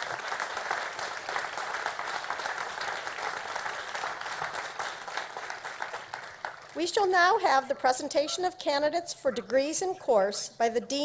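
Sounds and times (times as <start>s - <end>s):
crowd applauding: 0.0s - 7.1s.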